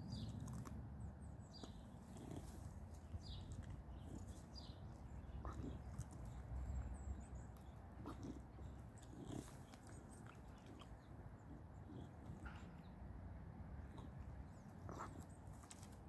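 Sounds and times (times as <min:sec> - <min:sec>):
dog making soft sounds: 0:05.2 - 0:12.8.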